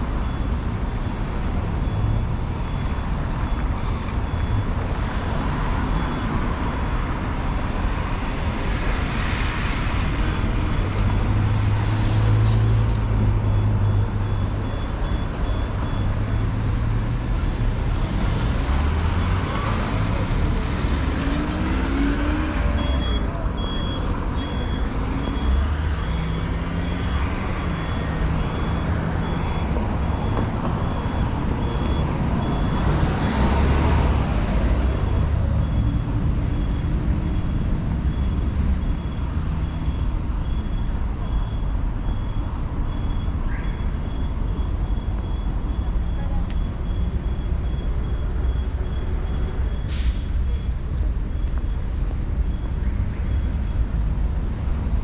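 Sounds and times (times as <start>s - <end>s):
cars and truck driving past: 0.0s - 55.0s
high electronic beep: 1.7s - 6.6s, 13.4s - 16.8s, 21.9s - 34.1s, 34.8s - 54.0s.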